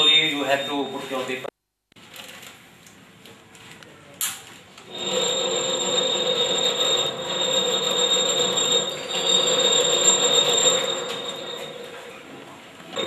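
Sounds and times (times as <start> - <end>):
packing machine whining: 4.9 - 13.0.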